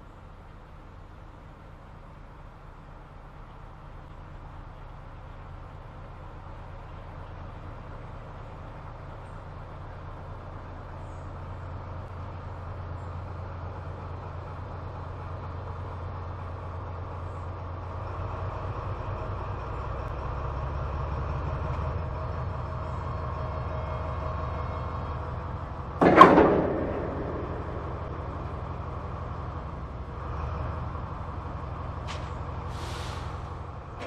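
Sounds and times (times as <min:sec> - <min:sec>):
diesel locomotive engine drone: 0:00.0 - 0:34.0
loud metallic clang of buffers: 0:26.0 - 0:29.8.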